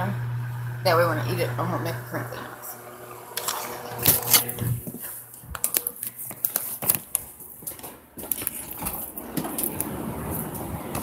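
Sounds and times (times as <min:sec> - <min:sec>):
plastic packaging crinkling: 0:03.4 - 0:09.9.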